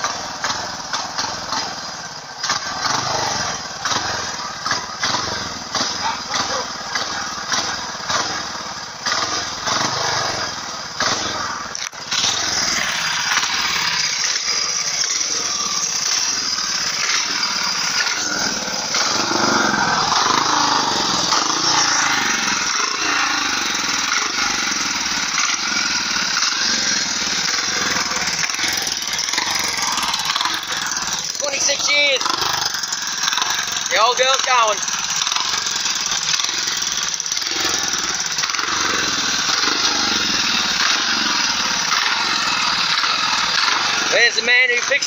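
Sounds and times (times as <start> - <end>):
motorcycle engine running: 0.0 - 45.0.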